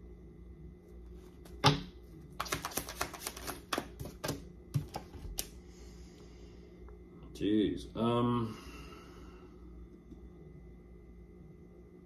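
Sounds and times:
cards snapping: 1.4 - 5.5
papery clicks of cards: 2.4 - 5.5.

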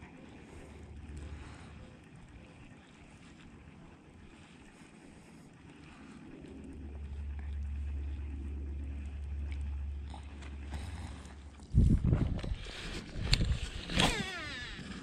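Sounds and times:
wind rumbling on microphone: 0.0 - 15.0
fishing reel line whirring: 4.2 - 15.0.

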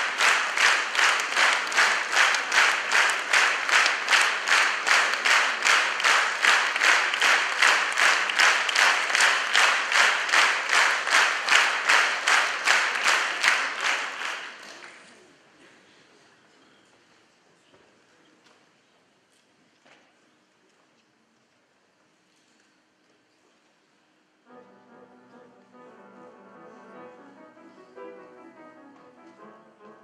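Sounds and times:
audience clapping in unison: 0.0 - 15.3.

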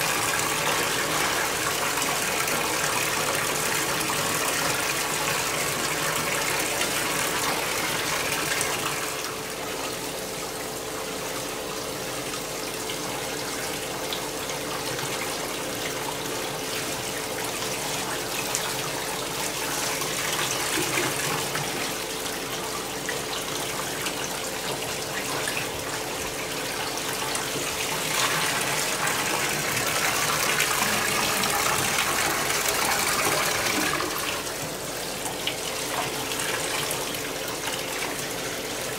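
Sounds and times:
tap water rushing into tub: 0.0 - 38.9.

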